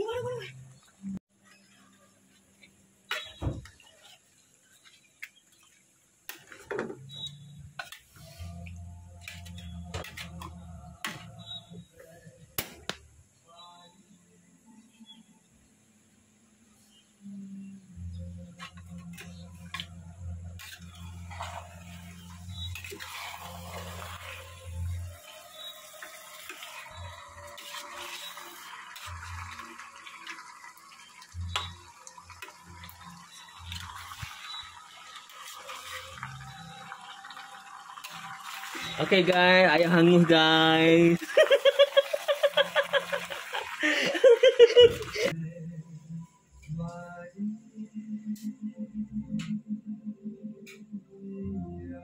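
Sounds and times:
metal spatula scraping a pot: 9.2s - 10.5s, 20.6s - 29.6s, 35.3s - 36.5s.

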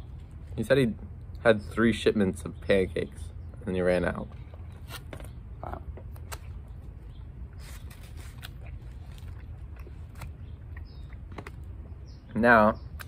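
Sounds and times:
chewing: 7.5s - 11.8s.

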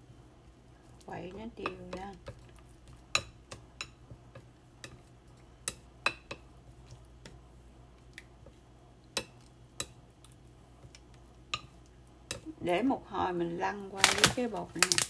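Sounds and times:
chopsticks tapping ceramic bowl: 1.3s - 6.5s, 9.1s - 10.0s, 11.5s - 12.5s.

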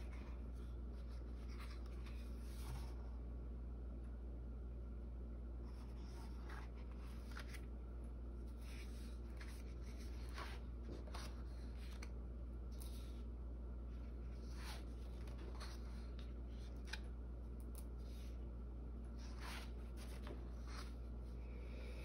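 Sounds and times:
book pages turning: 0.0s - 2.9s, 5.7s - 7.8s, 8.4s - 13.2s, 14.0s - 17.1s, 19.1s - 21.1s
steady low hum: 0.0s - 22.0s.

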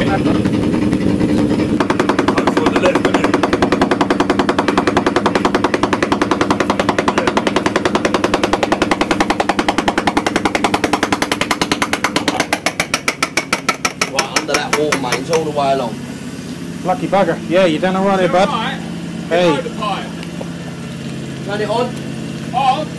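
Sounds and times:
steady engine hum: 0.0s - 22.9s
soil mole hammering through ground: 1.4s - 15.5s.

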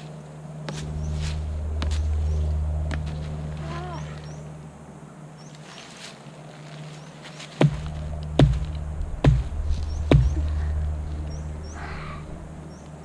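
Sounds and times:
knocks on metal carport: 7.6s - 10.5s.

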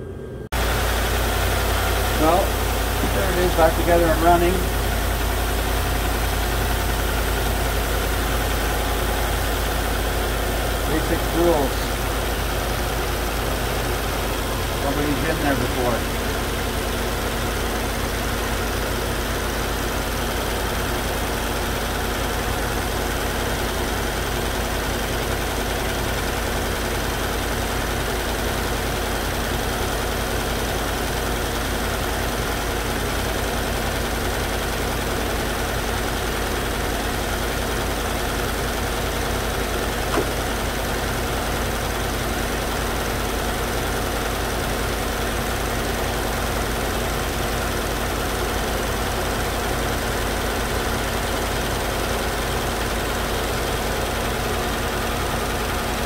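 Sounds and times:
truck engine idling: 0.0s - 56.0s
short click: 40.1s - 40.4s.

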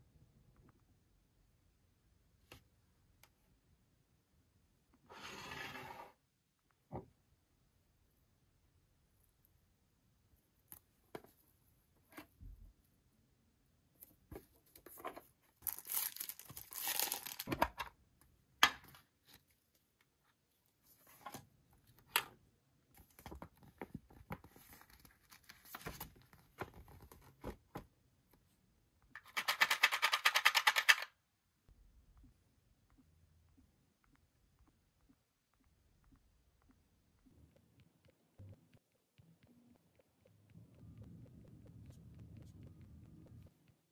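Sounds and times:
plastic wrap crinkling and tearing: 15.6s - 17.5s
puzzle pieces rattling in tin: 29.3s - 31.1s.

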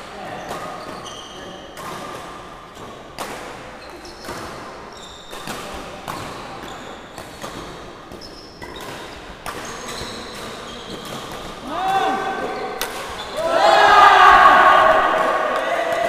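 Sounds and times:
shoes squeaking on wooden floor: 0.7s - 1.6s, 3.7s - 5.5s, 6.4s - 8.9s, 9.6s - 11.4s
racket striking shuttlecock: 1.6s - 13.4s.

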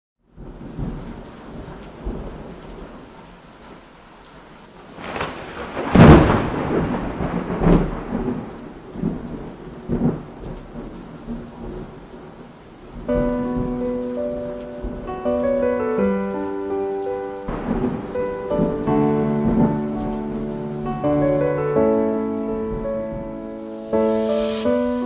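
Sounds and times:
steady rain: 0.2s - 25.0s
low thunder rumbles: 0.3s - 3.1s, 4.8s - 16.4s, 17.4s - 25.0s
thunder crack: 4.9s - 12.2s, 12.9s - 16.2s, 17.5s - 25.0s.

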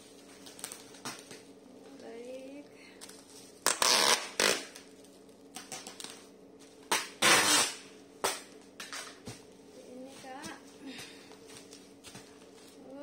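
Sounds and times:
bubble wrap crinkling: 0.0s - 1.4s.

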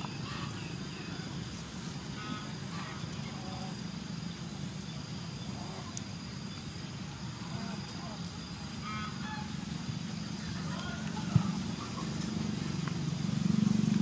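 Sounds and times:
faint bird calls: 7.3s - 12.5s.

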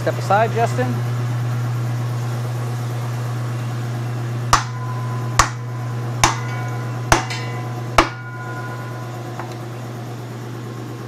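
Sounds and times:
hammer striking wooden block: 4.5s - 8.5s.

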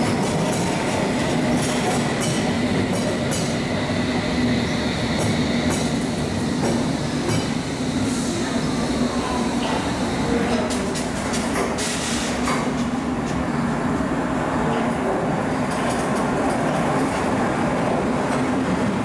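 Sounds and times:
train wheels clicking over rail joints: 0.0s - 3.6s
train rumble: 0.0s - 19.0s.

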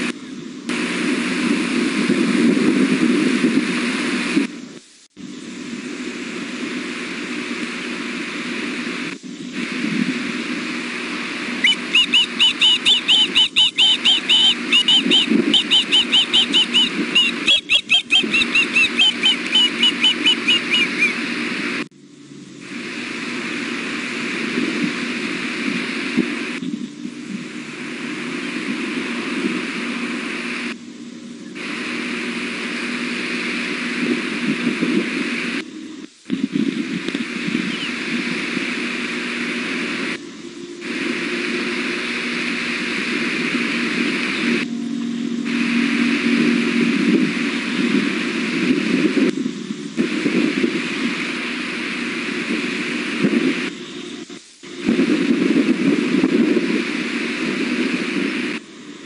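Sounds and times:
young birds high chirps: 11.6s - 21.2s, 37.7s - 38.0s.

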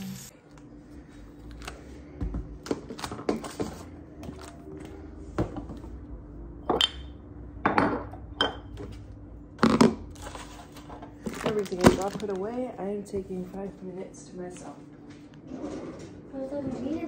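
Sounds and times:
dishes clinking and knocking: 6.6s - 9.0s.

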